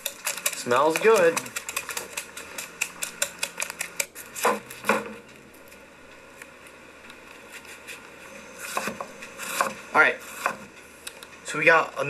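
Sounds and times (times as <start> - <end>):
pastry cutter scraping bowl: 0.0 - 4.9, 7.5 - 10.7.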